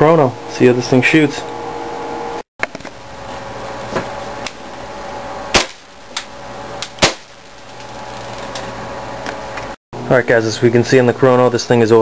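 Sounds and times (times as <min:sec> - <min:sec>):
airsoft pistol shots: 0:05.5 - 0:05.9, 0:07.0 - 0:07.4.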